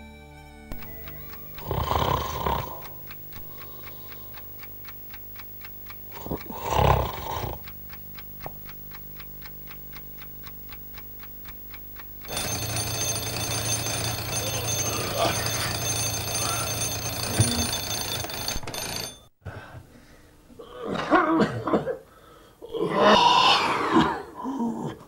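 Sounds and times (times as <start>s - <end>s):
alarm bell ringing: 0.7s - 7.7s, 11.2s - 19.3s
alarm clock ticking: 0.7s - 19.4s
man snoring loudly: 0.8s - 4.3s, 6.1s - 7.6s, 14.4s - 17.8s.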